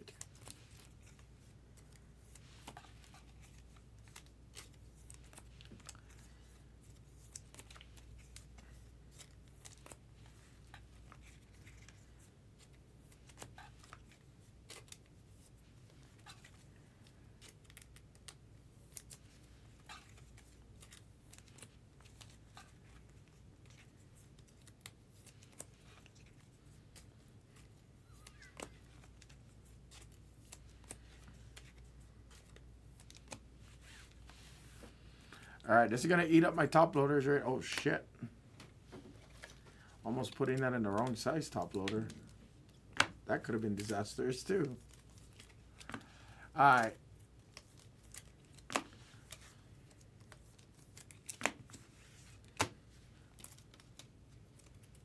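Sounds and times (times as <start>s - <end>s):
cards clicking and scraping in plastic: 39.3s - 55.0s.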